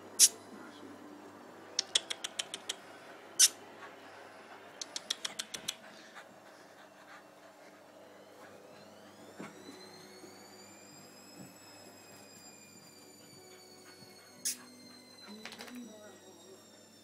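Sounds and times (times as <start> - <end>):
dog snapping: 1.8 - 2.8, 4.8 - 5.8
sharp clicks of dogs play-fighting: 1.8 - 4.0, 4.6 - 7.8, 12.9 - 15.8
dog whining: 1.8 - 10.3, 11.8 - 16.0.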